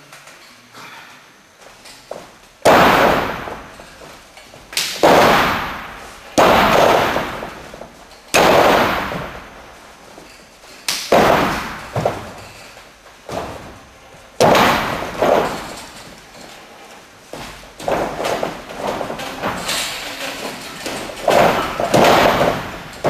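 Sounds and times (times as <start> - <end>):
loud bangs on wrestling mat: 2.1 - 10.0, 11.0 - 12.6, 13.3 - 16.3, 17.4 - 23.0.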